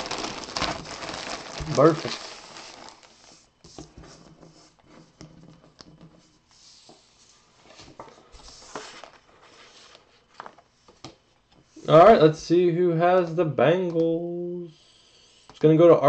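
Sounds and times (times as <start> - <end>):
plastic bag rustling and crinkling: 0.0 - 3.5.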